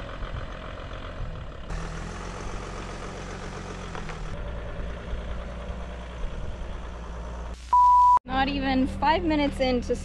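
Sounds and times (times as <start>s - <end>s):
van engine running: 0.0s - 7.6s.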